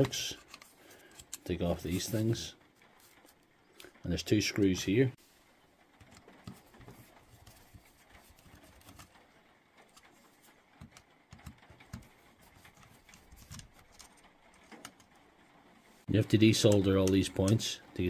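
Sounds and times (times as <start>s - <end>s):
screwdriver clicking and scraping: 0.0s - 2.3s.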